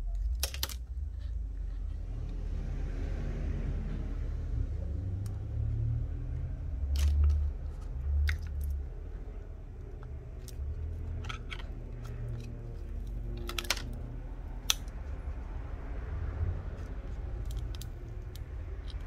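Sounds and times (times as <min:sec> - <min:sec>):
pry tool clicks and crackles: 0:00.1 - 0:00.9, 0:09.8 - 0:14.0, 0:14.6 - 0:15.0, 0:17.4 - 0:19.0.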